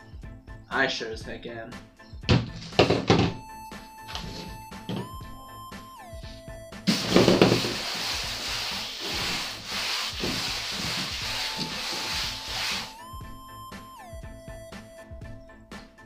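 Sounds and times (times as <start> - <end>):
gloved hands scrubbing tabletop: 6.9 - 13.0.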